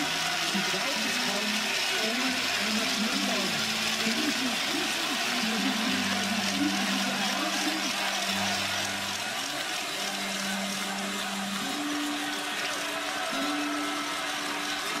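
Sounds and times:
crowd noise: 0:00.0 - 0:15.0.

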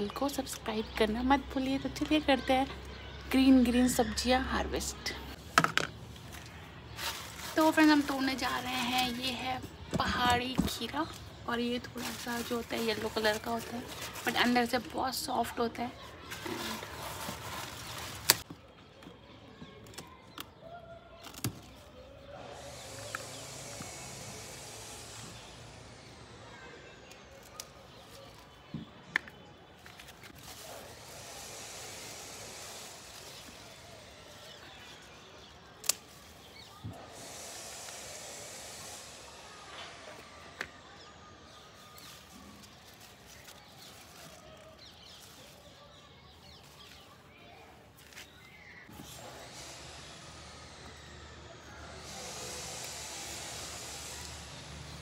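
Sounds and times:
background hiss: 0:22.3 - 0:27.2, 0:30.6 - 0:42.0, 0:48.4 - 0:55.0
pruning shears snipping stems: 0:35.8 - 0:36.3.

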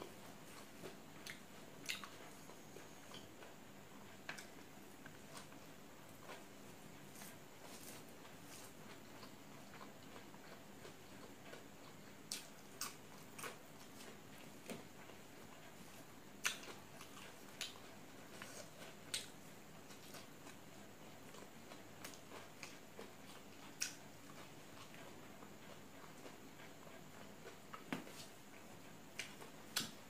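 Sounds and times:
faint background hum: 0:00.0 - 0:30.0
eating clicks and smacks: 0:16.4 - 0:17.8, 0:19.0 - 0:19.4, 0:23.7 - 0:25.0.

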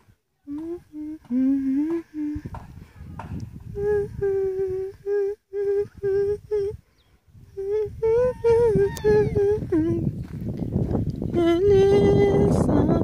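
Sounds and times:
person humming a tune: 0:00.4 - 0:06.8, 0:07.5 - 0:10.1.

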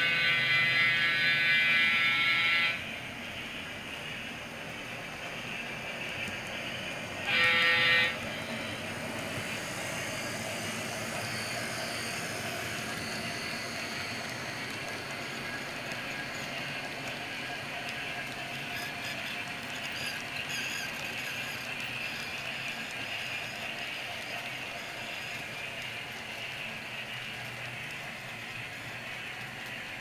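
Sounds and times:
model train wheels rumbling: 0:00.0 - 0:30.0
short horn blast: 0:07.2 - 0:08.2.

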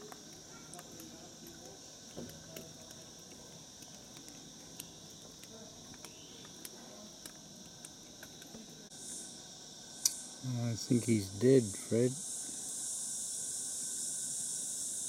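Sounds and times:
faint clicks: 0:00.0 - 0:08.6
high-pitched insect hiss: 0:00.0 - 0:15.0
insects chirring drone: 0:00.0 - 0:15.0.

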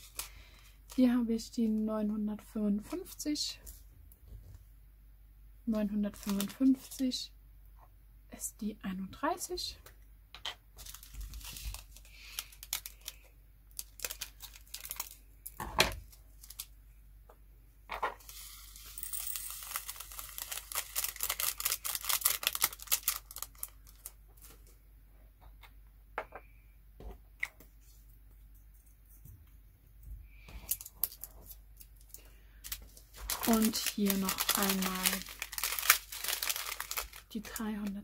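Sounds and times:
beads poured through plastic funnel: 0:00.0 - 0:01.0, 0:10.8 - 0:15.2, 0:18.2 - 0:24.1, 0:32.6 - 0:37.6.

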